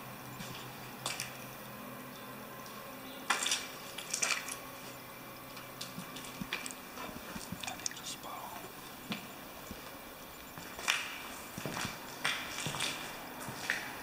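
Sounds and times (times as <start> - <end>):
footsteps crunching over rubble: 5.6 - 7.8, 9.0 - 14.0.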